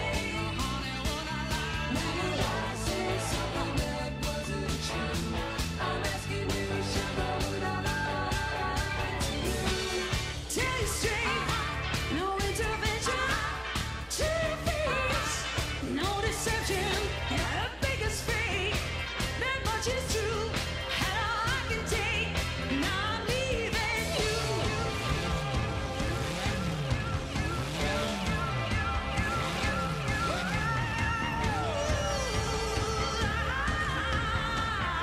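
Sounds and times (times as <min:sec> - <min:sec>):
pop song with singer: 0:00.0 - 0:35.0
steady drum beat: 0:00.0 - 0:35.0.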